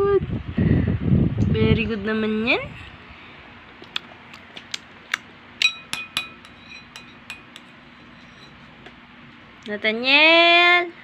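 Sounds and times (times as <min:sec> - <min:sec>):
metal spoon tapping a bowl: 0:05.6 - 0:08.6.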